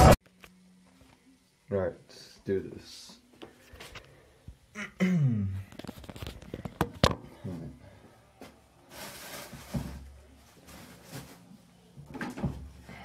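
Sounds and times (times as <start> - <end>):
rustling: 8.4 - 11.7.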